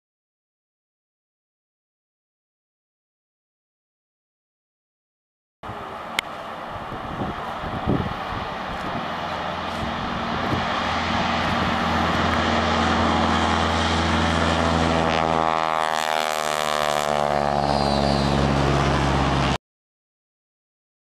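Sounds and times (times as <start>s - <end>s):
propeller airplane engine passing: 5.6s - 19.6s.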